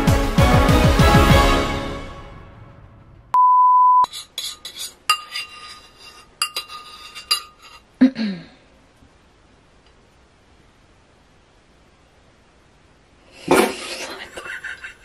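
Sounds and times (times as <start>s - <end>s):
single-pitch beep: 3.4s - 4.1s
spoon clinking against bowl: 4.1s - 7.8s.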